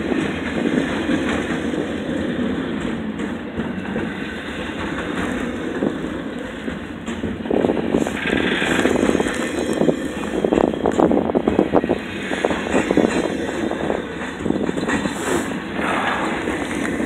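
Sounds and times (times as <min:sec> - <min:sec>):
steel wheels rumbling on rail: 0:00.0 - 0:17.0
wheels clicking on rail joints: 0:00.0 - 0:17.0.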